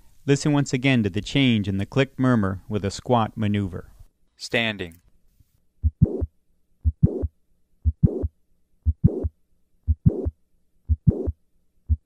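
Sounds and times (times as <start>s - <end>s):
heart click: 5.8s - 9.3s, 9.9s - 10.3s, 10.9s - 11.3s
heart murmur: 5.8s - 9.3s, 9.9s - 10.3s, 10.9s - 12.0s
heartbeat: 5.8s - 9.3s, 9.9s - 12.0s.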